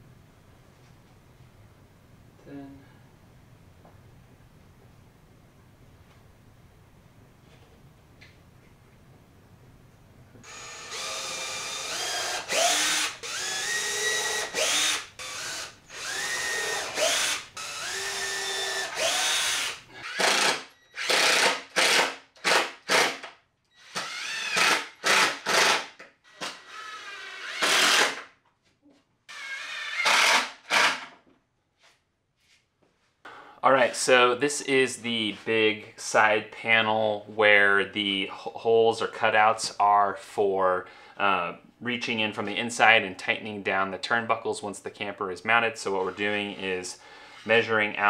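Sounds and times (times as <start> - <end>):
cordless drill driving screws: 10.4 - 28.2, 29.3 - 31.1.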